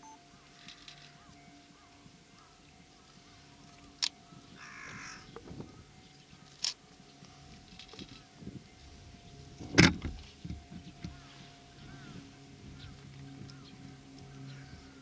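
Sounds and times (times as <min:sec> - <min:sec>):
crow cawing: 0:04.3 - 0:05.3, 0:11.1 - 0:13.7, 0:14.3 - 0:15.0
low distant rumble: 0:08.1 - 0:15.0.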